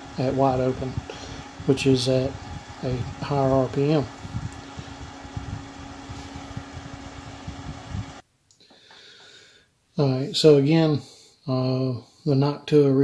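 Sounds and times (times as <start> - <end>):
computer fan humming: 0.0 - 12.5.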